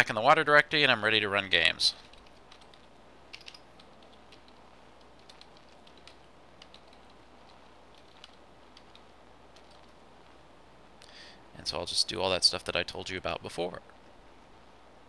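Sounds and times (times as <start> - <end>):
faint low hum: 0.0 - 15.0
computer keyboard keystrokes: 2.0 - 10.0.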